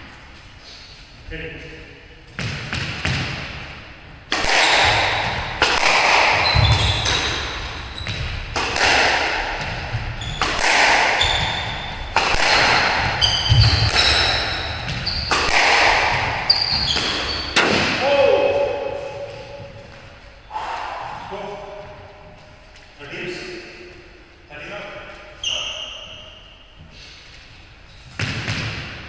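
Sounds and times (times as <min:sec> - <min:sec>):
squash ball hits echoing: 0:02.3 - 0:22.4, 0:28.1 - 0:29.0
sneakers squeaking on wooden floor: 0:06.2 - 0:08.6, 0:09.5 - 0:17.6, 0:25.1 - 0:27.0.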